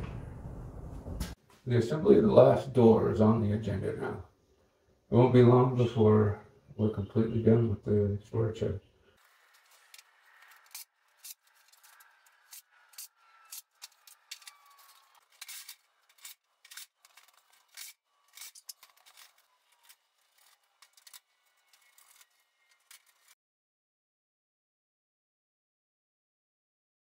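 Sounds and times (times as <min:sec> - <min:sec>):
metal hardware clicking and scraping: 0:09.5 - 0:23.4.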